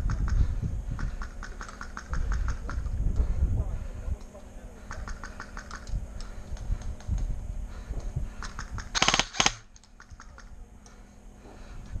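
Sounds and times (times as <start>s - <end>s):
faint clicks of shots and hits: 8.4s - 11.0s
airsoft gun full-auto bursts: 8.9s - 9.7s.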